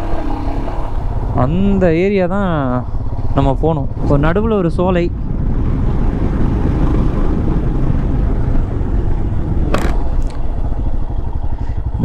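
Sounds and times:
motorcycle engine running: 0.0s - 12.0s
wind rumble on microphone: 0.8s - 12.0s.

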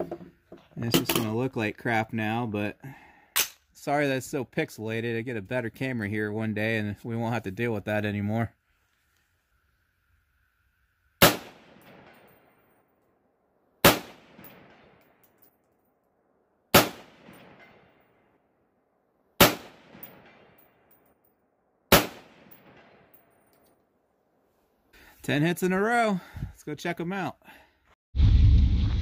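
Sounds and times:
rifle shots: 11.2s - 12.4s, 13.8s - 15.0s, 16.7s - 18.0s, 19.4s - 20.7s, 21.9s - 23.2s.

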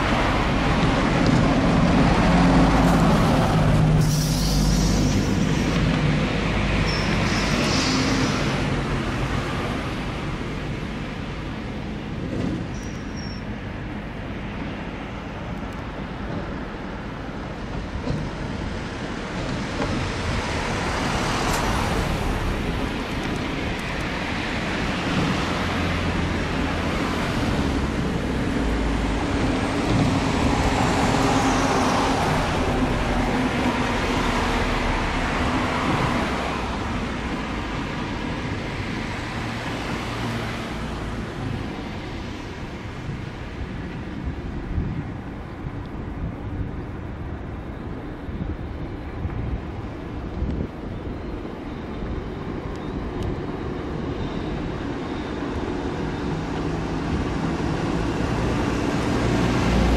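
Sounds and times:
passing vehicle rushing: 0.0s - 10.9s, 19.6s - 43.8s.

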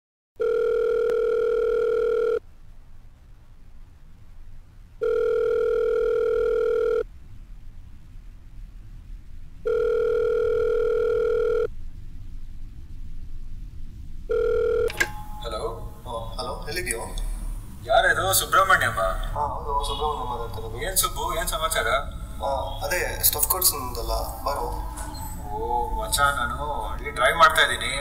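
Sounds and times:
telephone ringback tone: 0.4s - 2.4s, 5.0s - 7.0s, 9.7s - 11.7s, 14.3s - 15.5s.

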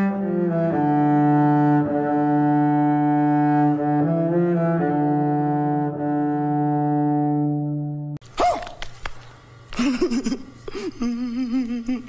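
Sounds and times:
slow string-like music: 0.0s - 8.2s.

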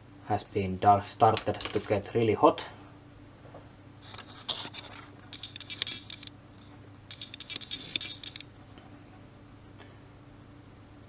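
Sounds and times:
rapid light clicking and scratching: 4.0s - 8.9s
plastic relay clicking: 5.3s - 6.3s, 7.1s - 8.4s.

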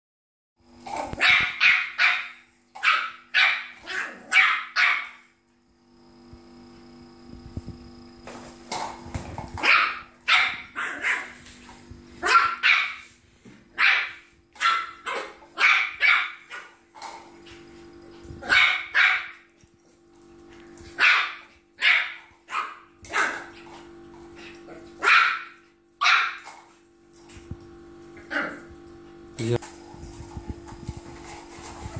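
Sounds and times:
puppy yapping: 0.8s - 5.2s, 9.6s - 11.4s, 12.2s - 13.1s, 13.7s - 16.8s, 18.4s - 19.4s, 21.0s - 23.6s, 25.0s - 26.6s.

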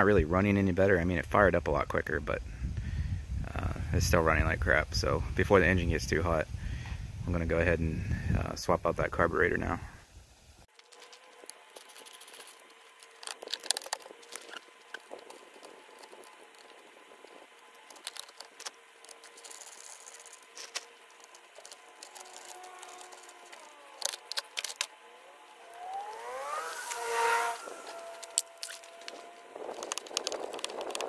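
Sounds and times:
hand tools clicking and rattling: 10.7s - 16.8s, 17.8s - 24.9s.

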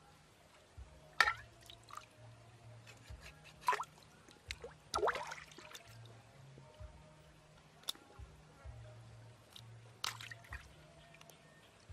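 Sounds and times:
water splashing and plopping: 1.2s - 2.1s, 3.6s - 6.1s, 10.0s - 10.7s.

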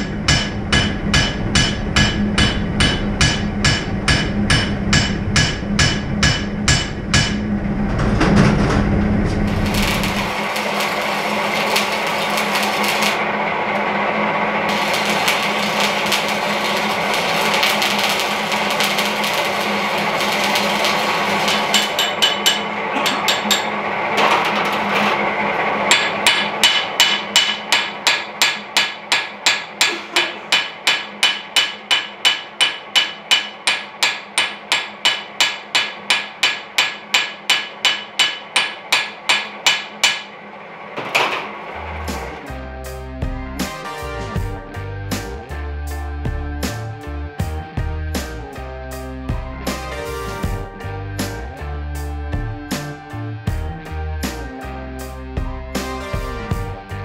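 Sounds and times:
hammer striking metal: 0.0s - 7.5s, 9.5s - 13.2s, 14.7s - 25.2s, 25.9s - 40.4s
welding arc crackling and hissing: 9.1s - 31.8s.

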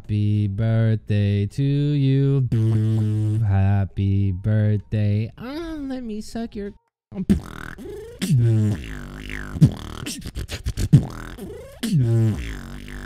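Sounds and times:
beatboxing into a microphone: 2.1s - 3.9s, 7.2s - 13.0s.

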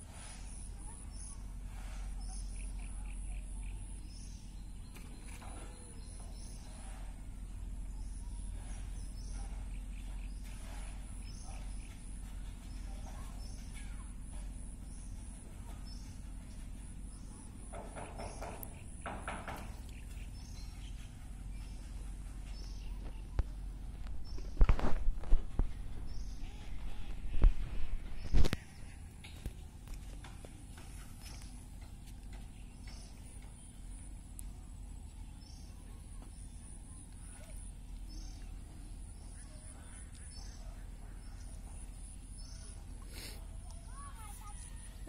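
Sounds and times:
low steady rumble: 0.0s - 45.0s
bird chirping: 31.2s - 42.9s.

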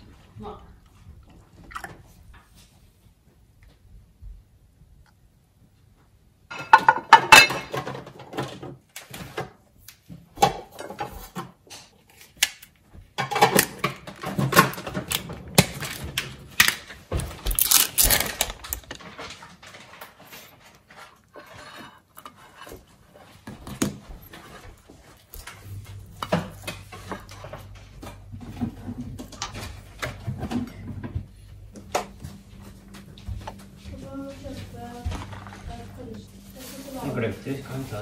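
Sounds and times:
plate and tub set down: 6.5s - 8.6s.

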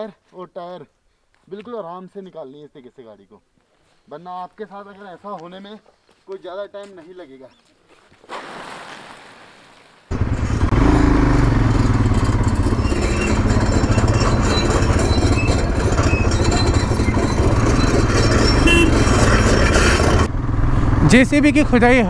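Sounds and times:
motorcycle engine running: 10.1s - 22.0s.

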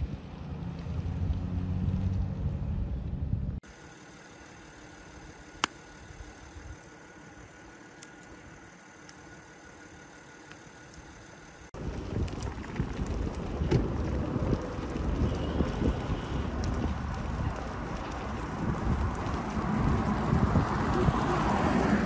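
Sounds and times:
wind rumble on microphone: 0.0s - 3.6s, 11.8s - 22.0s
thin high whine: 3.6s - 11.7s
faint steady hum: 3.6s - 12.3s.

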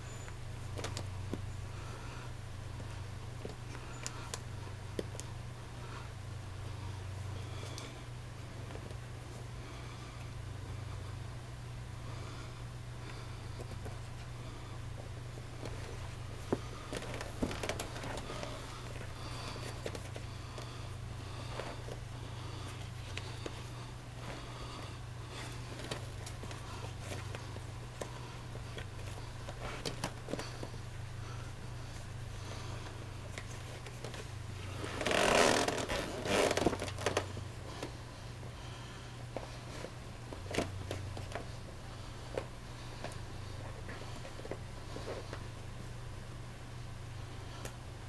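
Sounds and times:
steady low hum: 0.0s - 48.0s
rubber rubbing: 15.6s - 31.5s, 32.4s - 38.0s.

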